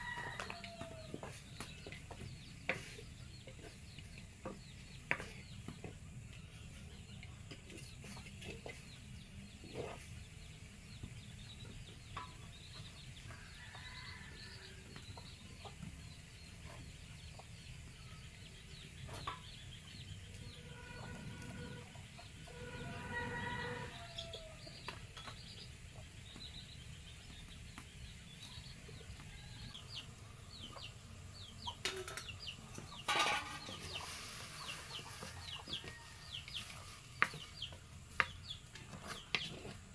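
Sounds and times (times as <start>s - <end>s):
wooden spatula scraping pot: 0.0s - 11.2s, 31.9s - 39.9s
chickens clucking: 0.0s - 39.9s.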